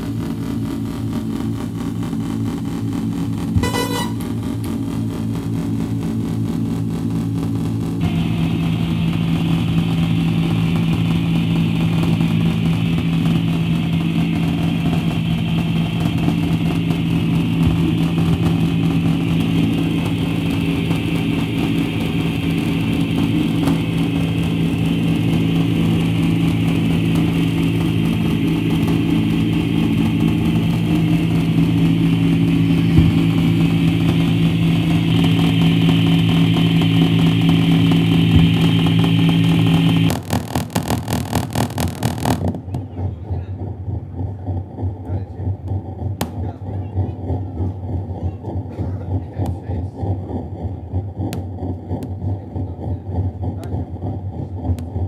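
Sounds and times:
electronic noise music drone: 0.0 - 55.0.

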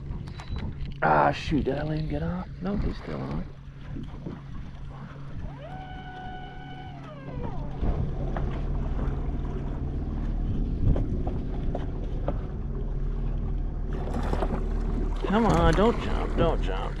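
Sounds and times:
low rumble: 0.0 - 17.0
fishing reel drag buzzing: 5.4 - 7.8.

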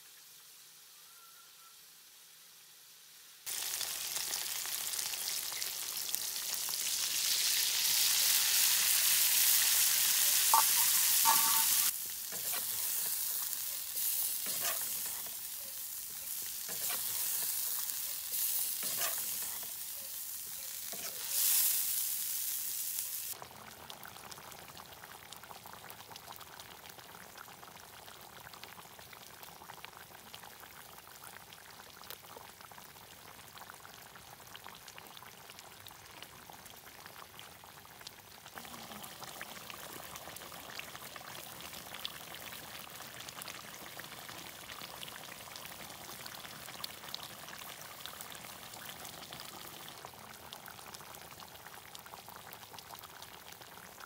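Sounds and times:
curry bubbling and popping: 23.3 - 54.0.

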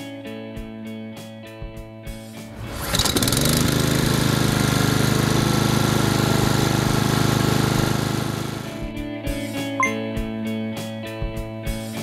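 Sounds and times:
lawnmower engine running: 2.5 - 8.9.

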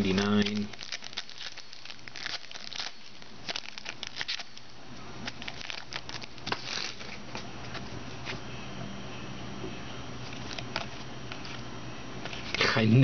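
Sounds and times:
trading cards flipped by hand: 5.2 - 8.4.

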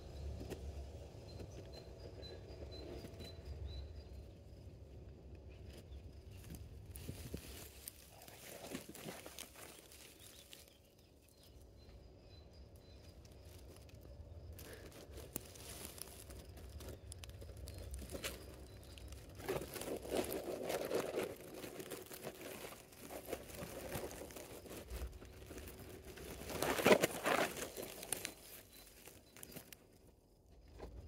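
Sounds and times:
dry grass rustling and crackling: 5.6 - 30.1.

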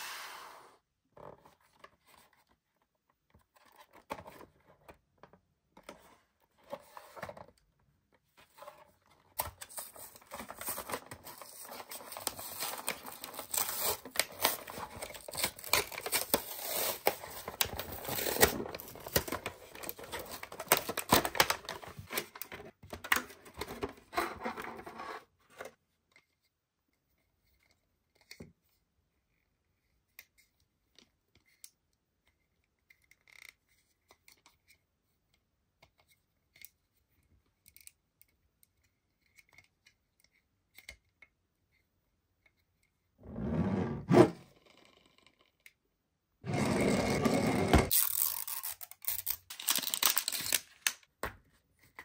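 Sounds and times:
cardboard tearing from plastic: 10.2 - 21.7, 47.9 - 50.9.

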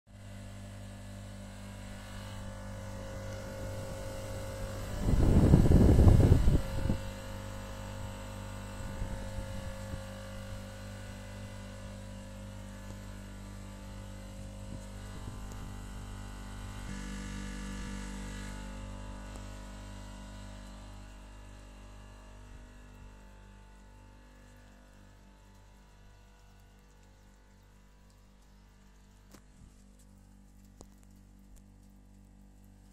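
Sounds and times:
air conditioning unit humming: 0.3 - 16.9.

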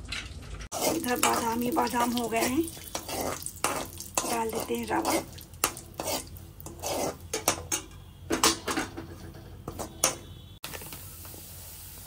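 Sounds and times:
spoon scraping a pan: 0.7 - 10.3.

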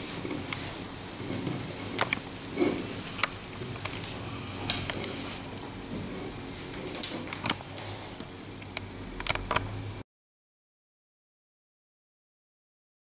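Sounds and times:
cables rustling: 0.0 - 8.7
cable connectors clicking: 6.8 - 7.6.

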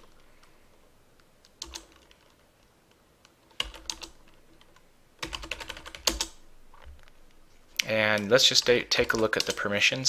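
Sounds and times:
computer keyboard keystrokes: 1.5 - 2.4, 3.5 - 6.4, 8.1 - 9.7.

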